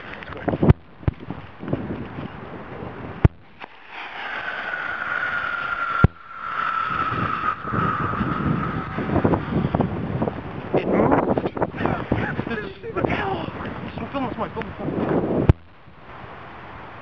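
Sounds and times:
sharp crack: 3.2 - 9.9
rocket motor hissing and whistling: 3.2 - 12.8.

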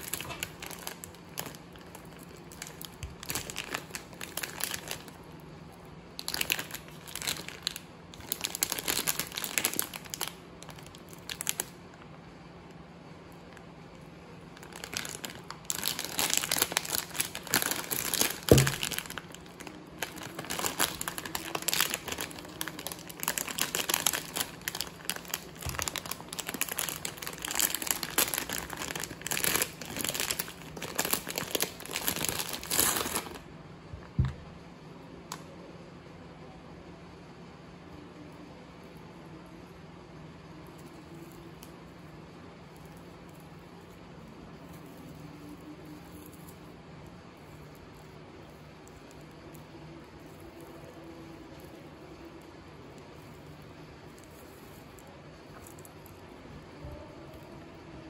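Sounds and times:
wrapper tearing: 0.0 - 5.2, 6.2 - 11.8, 14.6 - 33.4
plastic wrapper crinkling: 0.0 - 12.2, 13.3 - 33.5, 47.4 - 58.0.

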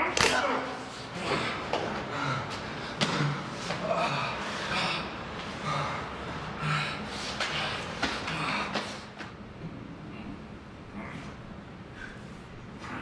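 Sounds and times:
men grunting and gasping: 1.1 - 9.2.

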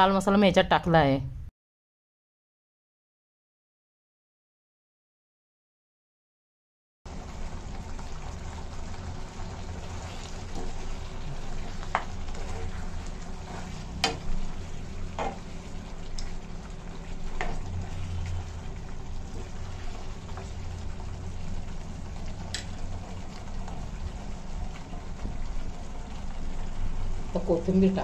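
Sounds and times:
chicken sizzling in a frying pan: 7.1 - 28.0.

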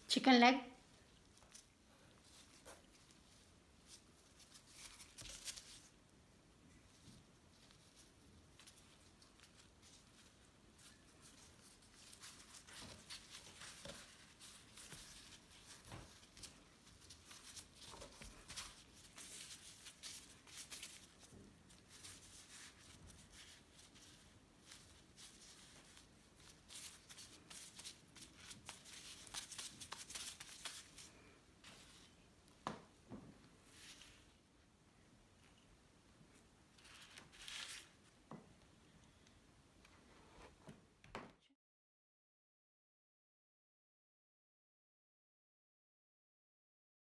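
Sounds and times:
plastic gloves crinkling: 1.0 - 32.9, 36.7 - 38.3.

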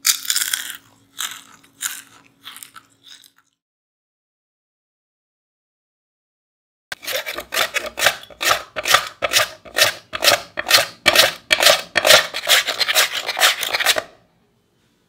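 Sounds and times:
potato scraping over slicer blade: 6.9 - 14.2.

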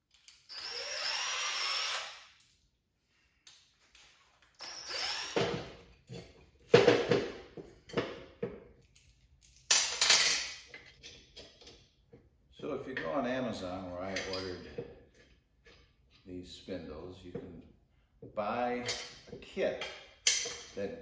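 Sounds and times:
cordless drill motor whine: 0.5 - 2.1.

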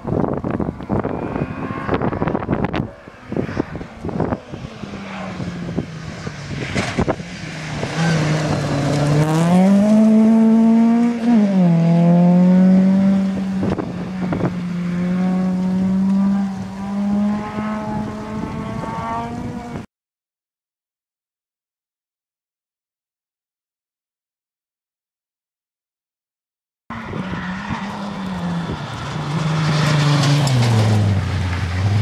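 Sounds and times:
rally car engine revving: 0.1 - 19.8, 26.9 - 32.0.

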